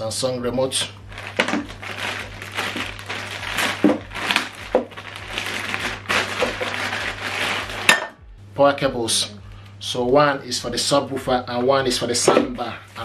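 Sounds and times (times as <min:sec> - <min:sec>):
steady low hum: 0:00.0 - 0:13.0
plastic bag crinkling: 0:01.0 - 0:08.0.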